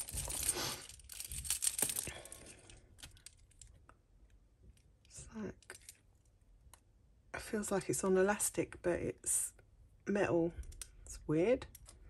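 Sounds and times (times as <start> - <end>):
jewellery clinking and rustling: 0.0 - 3.8.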